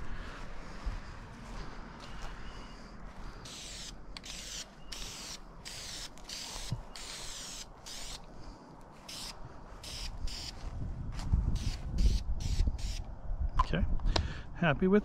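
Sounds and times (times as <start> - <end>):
spray can hissing bursts: 3.5 - 8.2.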